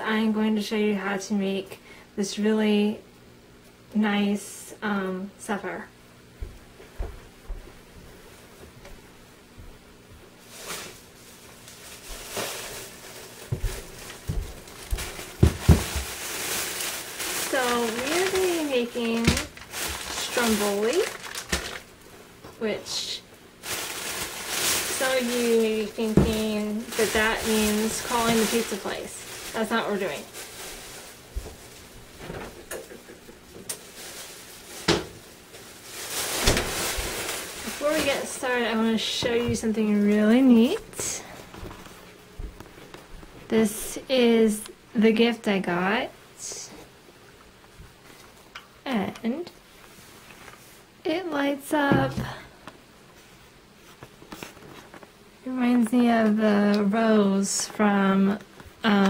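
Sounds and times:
low appliance hum: 0:00.0 - 0:59.0
rustling and handling noises: 0:06.4 - 0:44.8, 0:45.8 - 0:59.0
knocks and clicks of objects handled: 0:32.2 - 0:33.8
soft knocks or steps: 0:51.9 - 0:52.4.

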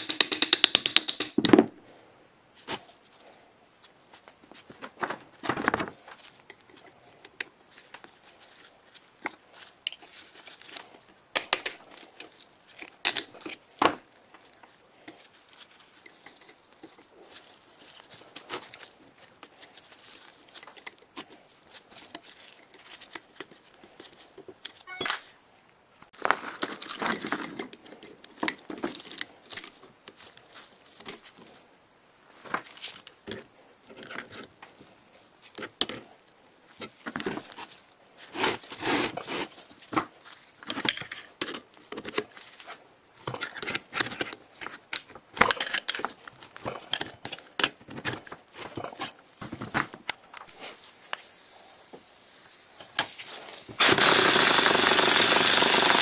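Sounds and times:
metal tools clinking and scraping: 0:15.9 - 0:18.4, 0:26.3 - 0:30.0
loud power tool running: 0:53.8 - 0:56.0.

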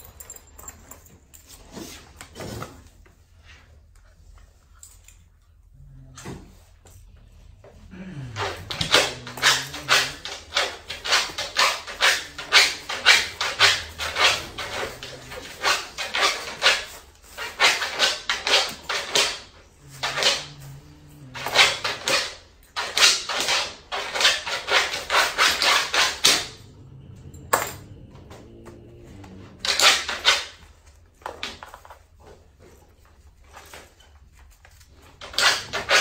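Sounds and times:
puppies scratching with claws: 0:01.3 - 0:36.0.

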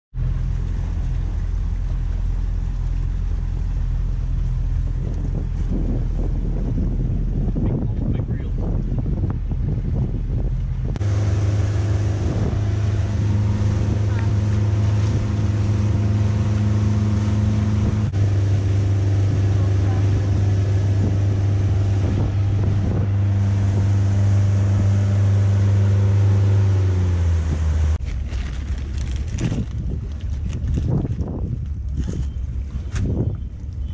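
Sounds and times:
boat engine humming: 0:00.1 - 0:33.9
outboard motor droning: 0:00.1 - 0:33.9.

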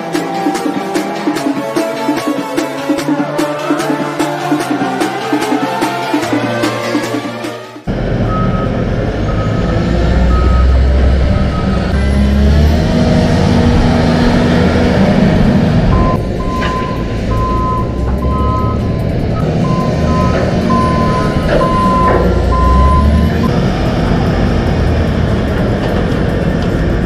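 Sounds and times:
wheel loader diesel engine: 0:00.0 - 0:27.0
reversing alarm beeping: 0:08.2 - 0:12.0, 0:15.9 - 0:23.5.

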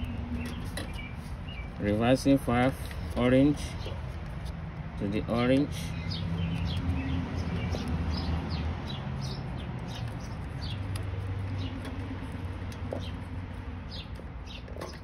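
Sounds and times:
small bird chirping: 0:00.0 - 0:01.9, 0:05.9 - 0:15.0.

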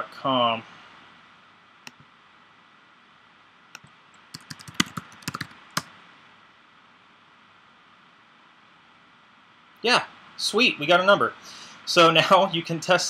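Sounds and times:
keyboard key clicks: 0:03.8 - 0:05.9.

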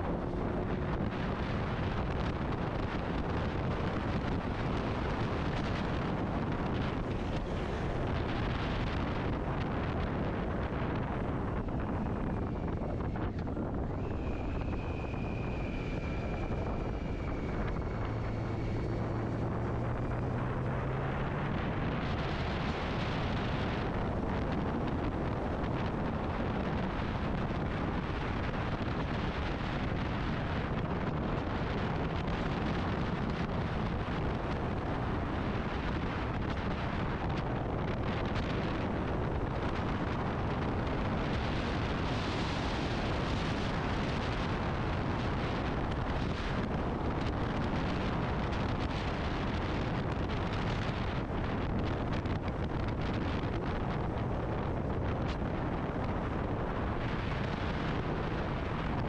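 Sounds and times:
road noise: 0:00.0 - 0:59.0
wind rush on microphone: 0:00.0 - 0:59.0.

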